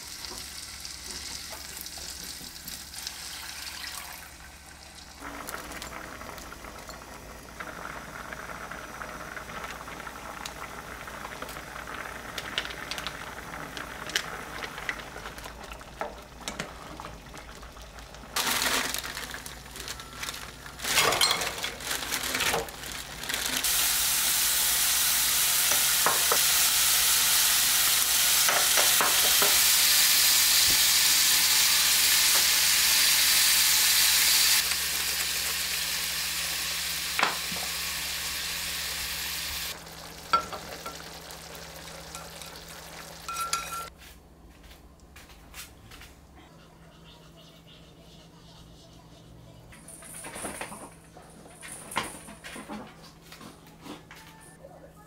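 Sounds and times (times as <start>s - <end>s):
bacon sizzling in a frying pan: 0.0s - 14.5s, 22.7s - 43.9s.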